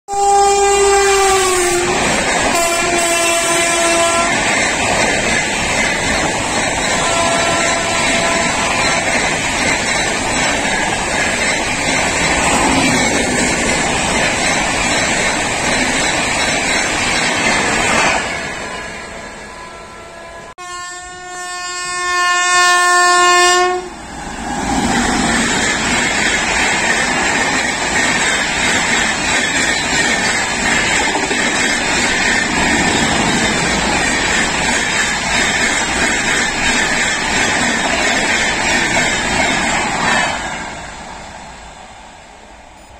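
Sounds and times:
loud locomotive horn: 0.1s - 4.6s, 6.9s - 9.1s, 19.4s - 24.1s
trains passing with rushing clatter: 0.1s - 42.9s.

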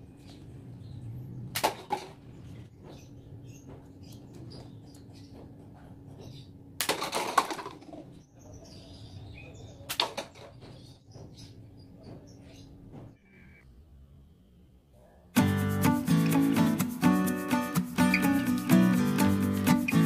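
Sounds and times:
paper cups clattering: 6.9s - 8.0s.

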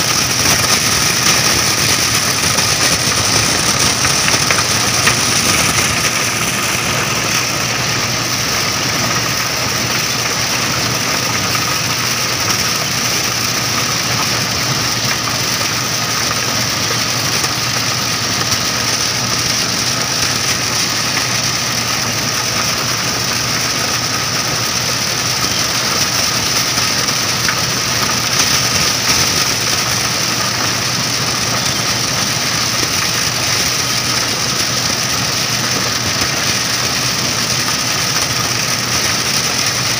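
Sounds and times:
combine harvester running: 0.0s - 39.9s.

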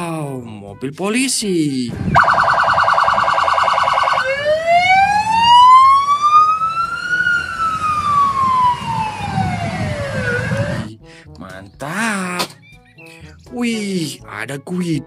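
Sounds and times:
police siren warbling and wailing: 1.9s - 10.9s.

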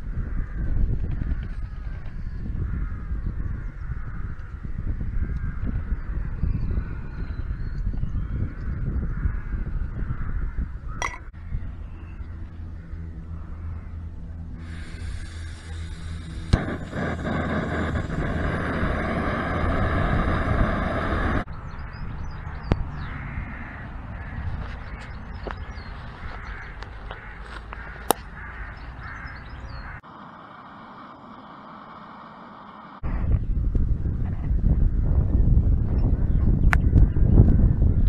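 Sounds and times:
burner rushing hiss: 14.6s - 21.5s
gas hissing: 14.6s - 21.5s.

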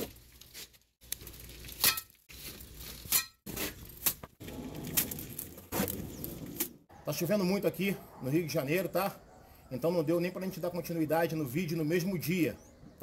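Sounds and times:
trowel scraping and slapping mortar: 0.0s - 6.8s.

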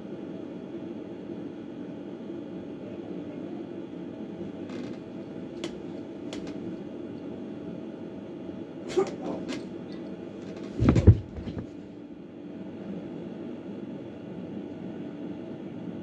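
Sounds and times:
low room hum: 0.0s - 16.0s
light knocks and rustles: 10.4s - 11.8s
body thumping onto carpeted floor: 10.6s - 11.8s.

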